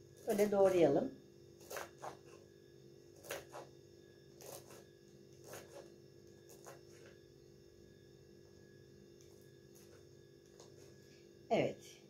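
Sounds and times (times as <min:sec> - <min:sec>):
knife chopping on cutting board: 0:01.6 - 0:02.4, 0:03.2 - 0:03.7, 0:04.4 - 0:07.1.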